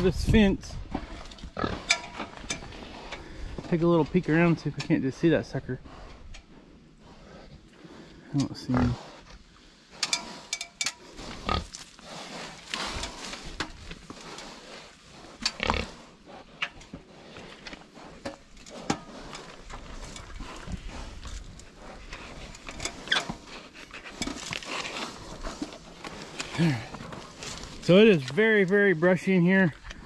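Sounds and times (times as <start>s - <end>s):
pigs grunting: 1.0s - 3.8s, 5.7s - 9.3s, 9.9s - 27.9s
rustle of dry brush: 9.1s - 16.2s, 23.3s - 29.2s.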